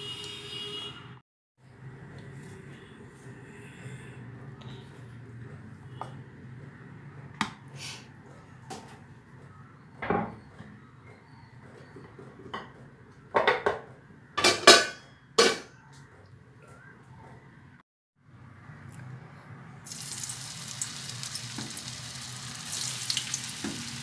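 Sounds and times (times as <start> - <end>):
dishes and utensils clinking: 13.4 - 15.7.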